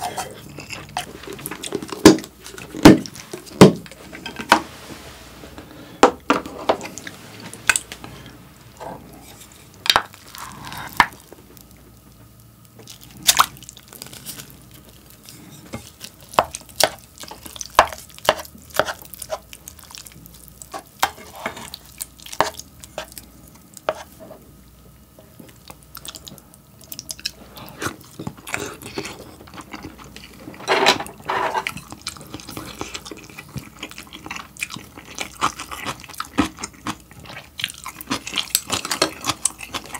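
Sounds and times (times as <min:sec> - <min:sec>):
wet mixing sounds: 0:12.8 - 0:24.4.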